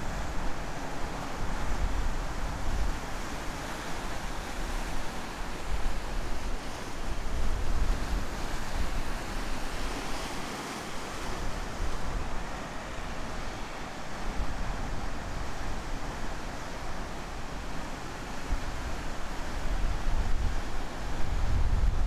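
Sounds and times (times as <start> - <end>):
waves breaking: 0.0 - 22.0
wind rumbling on microphone: 18.3 - 22.0.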